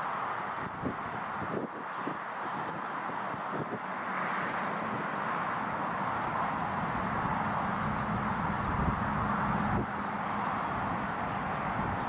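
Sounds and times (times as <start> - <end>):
wind on microphone: 0.5 - 12.0.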